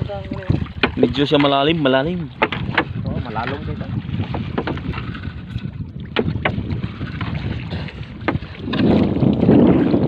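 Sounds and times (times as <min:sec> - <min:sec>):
water sloshing against canoe: 0:00.0 - 0:10.0
wind on microphone: 0:00.0 - 0:10.0
sharp knocks: 0:02.4 - 0:03.0, 0:04.5 - 0:04.9, 0:06.1 - 0:06.6.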